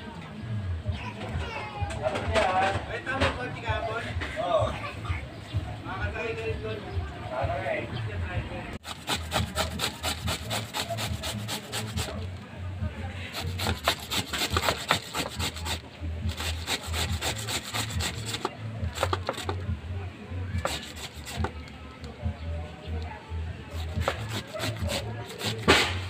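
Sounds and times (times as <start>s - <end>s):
papaya rasping on metal grater: 8.8s - 12.3s, 13.3s - 19.6s, 20.6s - 21.6s, 23.7s - 26.0s.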